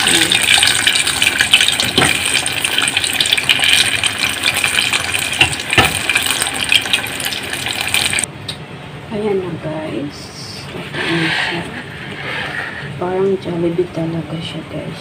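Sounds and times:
oil popping: 0:00.0 - 0:08.3
oil sizzling: 0:00.0 - 0:08.3.

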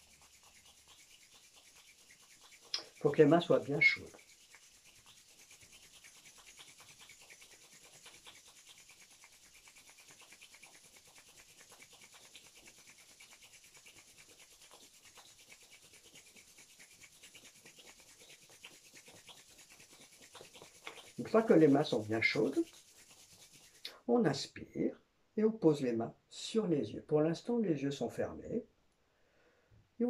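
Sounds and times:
hands rubbing together: 0:00.0 - 0:24.0.

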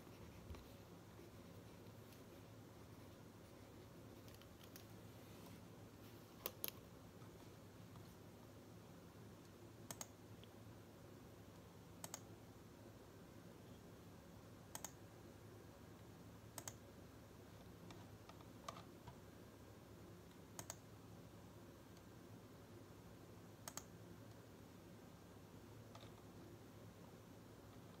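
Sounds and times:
faint low hum: 0:00.0 - 0:28.0
computer mouse clicking: 0:04.2 - 0:05.0, 0:06.4 - 0:06.8, 0:09.8 - 0:10.6, 0:12.0 - 0:12.3, 0:14.7 - 0:15.0, 0:16.5 - 0:16.9, 0:20.3 - 0:20.9, 0:23.6 - 0:24.0, 0:25.9 - 0:26.3.

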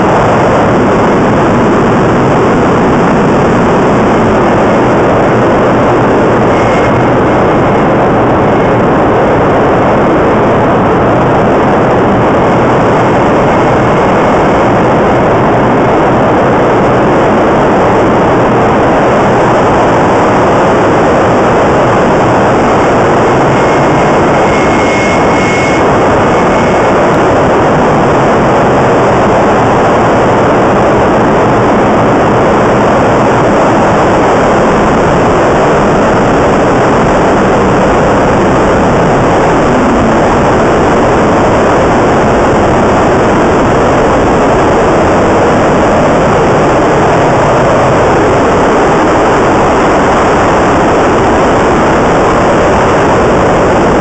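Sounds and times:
gas turbine roar: 0:00.0 - 0:54.0
faint high tone: 0:06.4 - 0:07.2, 0:21.6 - 0:27.3.

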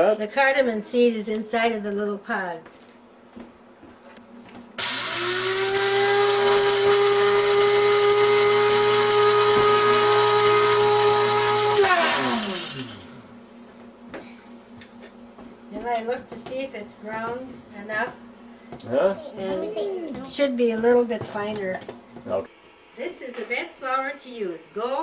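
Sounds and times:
electric spice grinder whirring: 0:04.8 - 0:13.4.

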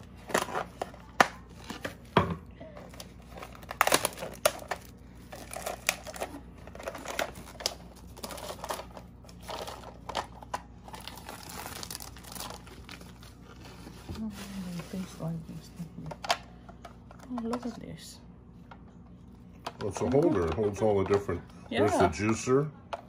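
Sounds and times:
plastic wrap crinkling: 0:02.8 - 0:15.7.

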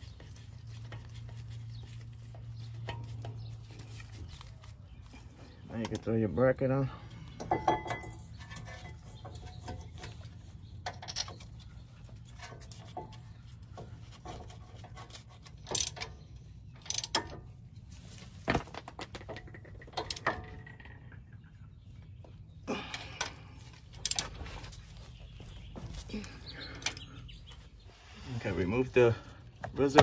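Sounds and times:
ratchet wrench clicking: 0:15.6 - 0:16.1, 0:16.8 - 0:17.3.

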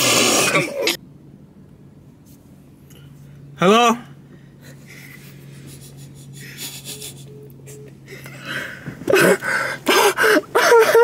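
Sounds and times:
low steady hum: 0:00.0 - 0:11.0
young men laughing: 0:04.8 - 0:08.2, 0:08.8 - 0:11.0
faint short beeps: 0:06.9 - 0:08.0.

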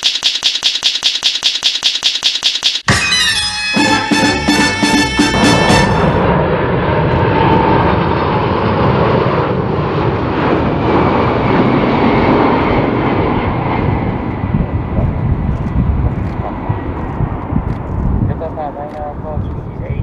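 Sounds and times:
jet aircraft passing low: 0:03.2 - 0:20.0.

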